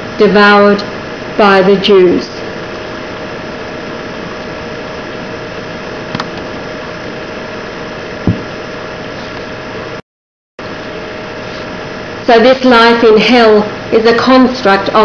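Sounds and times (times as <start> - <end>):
background hiss and hum: 0.0 - 10.0, 10.6 - 15.0
sharp low thump: 8.2 - 8.5.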